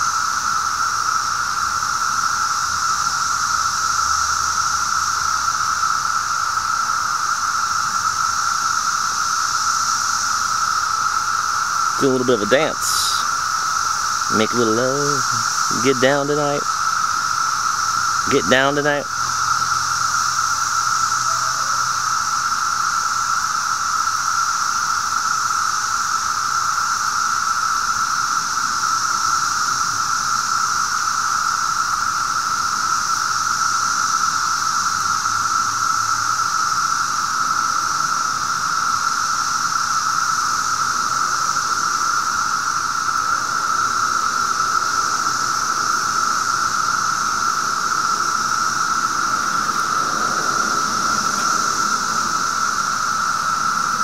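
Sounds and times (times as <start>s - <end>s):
cicadas droning: 0.0s - 54.0s
faint high hiss: 11.8s - 20.1s.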